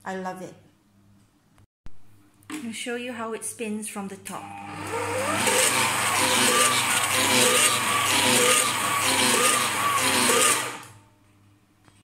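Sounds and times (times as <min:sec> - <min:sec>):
stand mixer whirring: 0:04.5 - 0:11.0
scraper blades squealing on bowl: 0:05.4 - 0:10.8.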